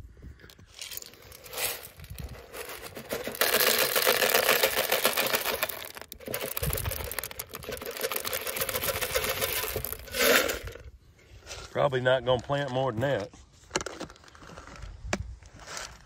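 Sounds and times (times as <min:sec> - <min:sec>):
seeds rattling on plastic: 0:00.7 - 0:10.9.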